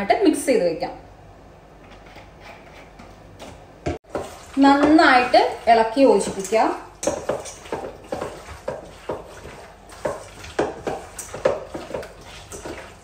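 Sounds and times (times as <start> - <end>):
wet mixing strokes: 4.0 - 13.0.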